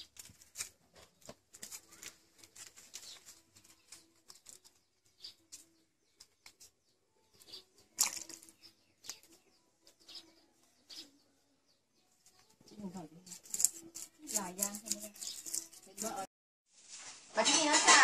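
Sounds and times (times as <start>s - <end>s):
knife scraping fish scales: 13.2s - 16.3s.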